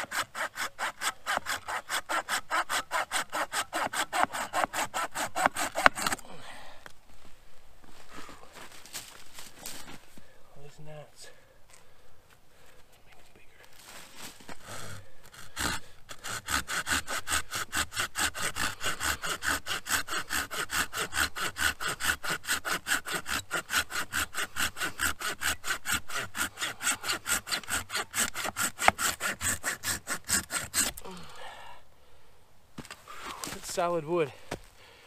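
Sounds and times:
pruning saw cutting branch: 0:00.0 - 0:06.2, 0:14.8 - 0:31.1.

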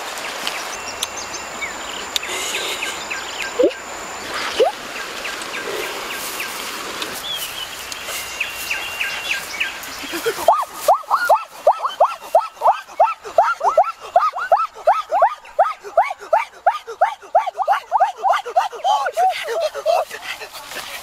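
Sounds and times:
background hiss: 0:00.0 - 0:18.1
insect high drone: 0:00.0 - 0:21.0
birds chirping: 0:00.2 - 0:21.0
short rising calls: 0:01.2 - 0:09.6.

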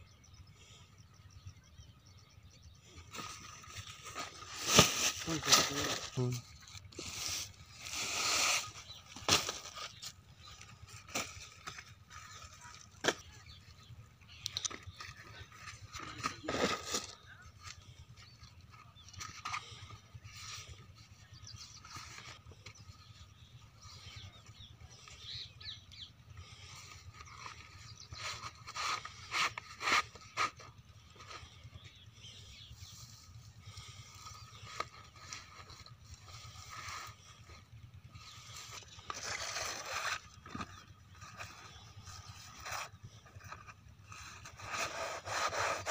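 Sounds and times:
plastic pipe scraping on sand: 0:42.5 - 0:45.9.

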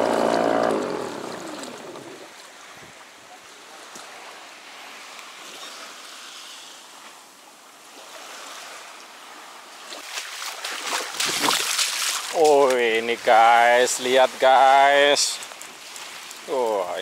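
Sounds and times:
kayak scraping on shore: 0:00.0 - 0:02.8
water lapping against kayak hull: 0:00.0 - 0:03.1, 0:07.8 - 0:12.7.

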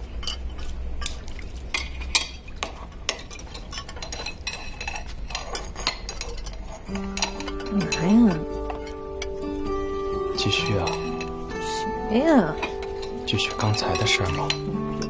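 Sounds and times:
dishes and cutlery clinking: 0:00.0 - 0:15.0.

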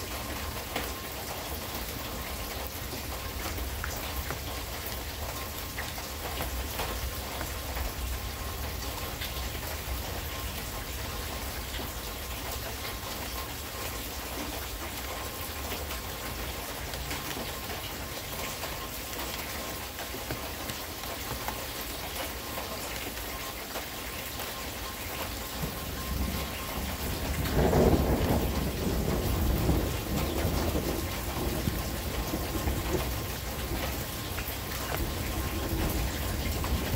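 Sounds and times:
steady rain falling: 0:00.0 - 0:36.9
rolling thunder: 0:25.6 - 0:34.0.

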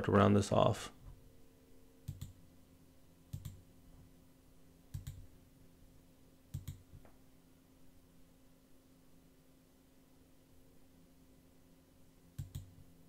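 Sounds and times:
faint steady hum: 0:00.0 - 0:13.0
computer mouse button clicking: 0:12.4 - 0:12.7.

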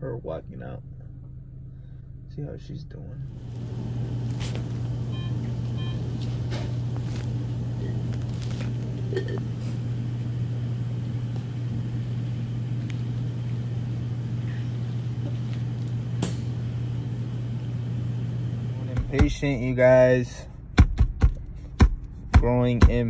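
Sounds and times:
steady low hum: 0:00.0 - 0:23.0
short beeps: 0:05.1 - 0:06.1.

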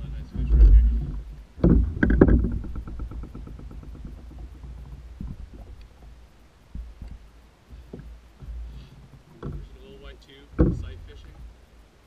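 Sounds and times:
soft knocks: 0:00.0 - 0:11.6
light ticks: 0:04.8 - 0:08.1.

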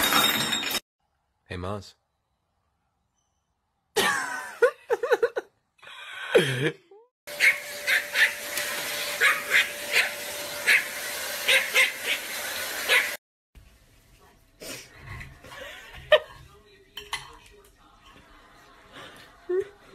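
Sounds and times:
small dog yapping: 0:07.4 - 0:08.4, 0:09.2 - 0:10.9, 0:11.5 - 0:12.2, 0:12.9 - 0:13.2.

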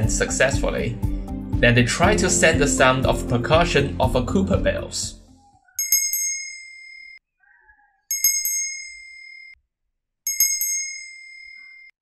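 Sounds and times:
small bells ringing: 0:05.8 - 0:07.2, 0:08.1 - 0:09.6, 0:10.3 - 0:12.0.

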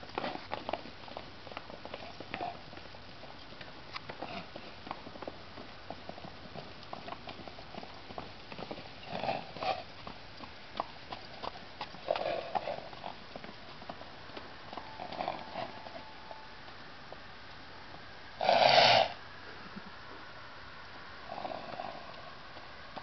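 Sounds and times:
horse hoofbeats on sand: 0:00.0 - 0:17.2.

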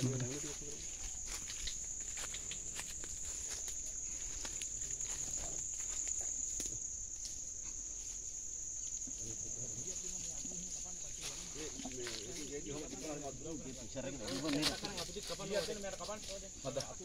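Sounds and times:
footsteps through dry leaves: 0:00.0 - 0:06.4
high-pitched insect drone: 0:00.0 - 0:17.0.

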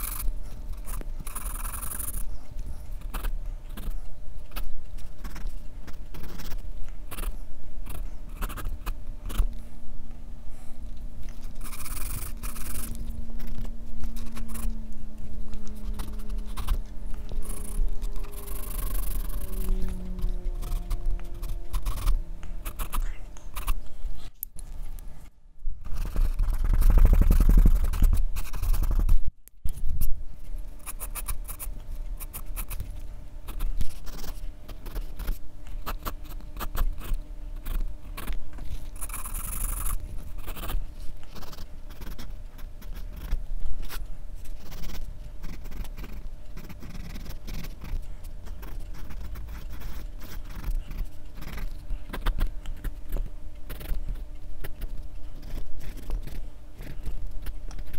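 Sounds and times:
pencil scratching on paper: 0:39.0 - 0:53.0.

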